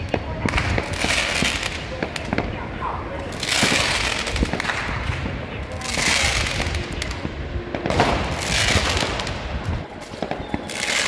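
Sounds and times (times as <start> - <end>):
firework cracks and pops: 0.0 - 2.6, 3.2 - 11.0
fireworks hissing rush of sparks: 0.0 - 2.6, 3.2 - 11.0.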